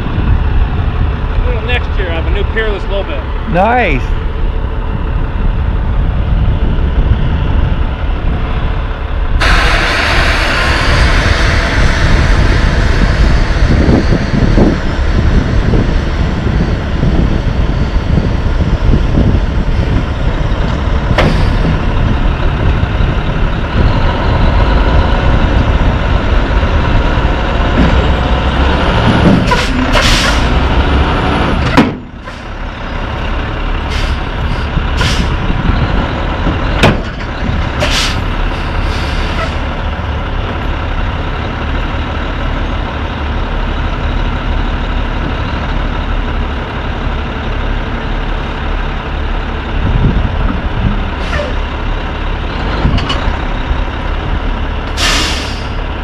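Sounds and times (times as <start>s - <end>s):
diesel truck engine running: 0.0s - 56.0s
air brake hisses: 33.9s - 35.3s, 37.8s - 39.6s, 55.0s - 55.8s.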